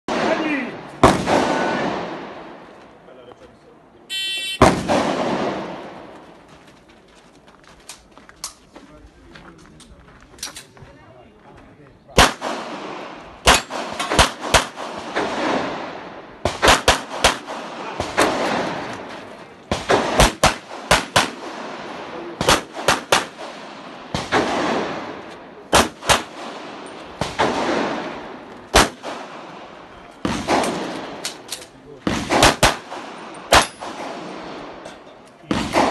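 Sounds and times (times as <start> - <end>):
pistol shots with echo: 0.1 - 2.6, 4.5 - 6.1, 12.2 - 34.8, 35.4 - 35.9.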